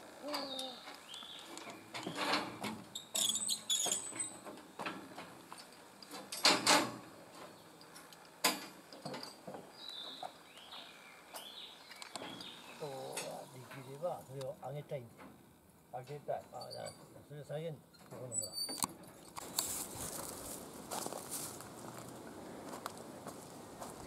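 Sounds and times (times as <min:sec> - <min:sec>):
faint bird chirps: 0:00.2 - 0:02.3
knocks and rustling clatter: 0:01.5 - 0:10.4.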